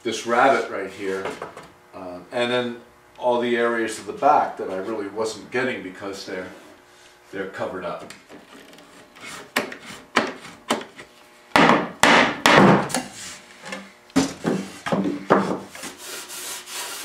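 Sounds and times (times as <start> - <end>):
knocks on wooden boards: 11.5 - 13.0, 14.2 - 15.7.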